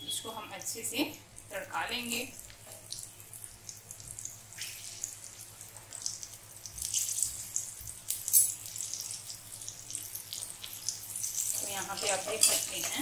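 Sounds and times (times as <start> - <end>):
chillies sizzling in hot ghee: 0.0 - 13.0.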